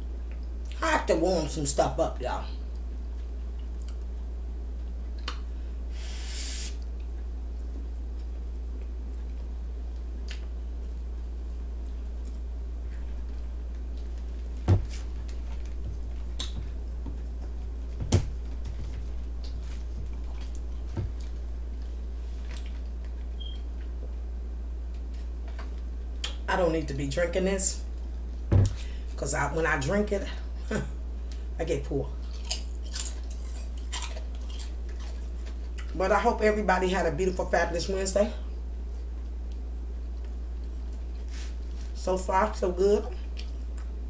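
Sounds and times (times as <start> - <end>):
low electrical hum: 0.0 - 44.0
brief hiss: 5.9 - 6.8.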